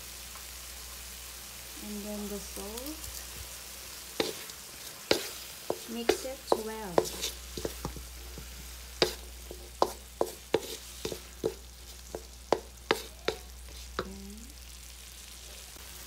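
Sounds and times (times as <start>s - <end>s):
low sizzle: 0.0s - 16.0s
spatula knocking and scraping wok: 4.1s - 14.2s.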